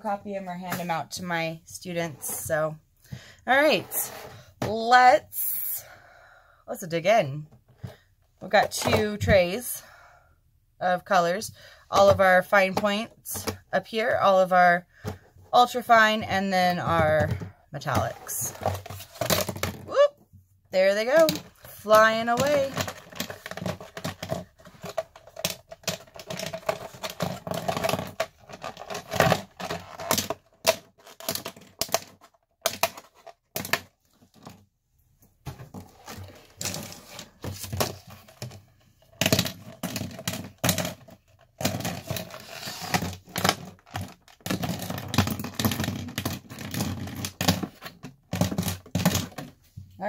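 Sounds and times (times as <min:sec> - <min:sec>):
plastic tray rattling: 0:21.0 - 0:34.6.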